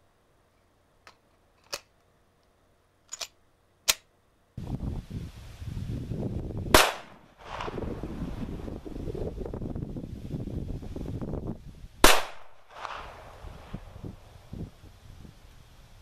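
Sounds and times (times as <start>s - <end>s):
wind buffeting microphone: 4.6s - 16.0s
pistol shot: 6.8s - 7.8s, 12.0s - 13.3s.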